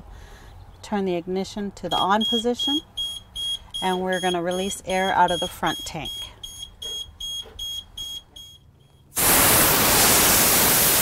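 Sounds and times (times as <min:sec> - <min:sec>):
high warning beeper: 0:01.9 - 0:09.1
compressed air hissing: 0:09.2 - 0:11.0.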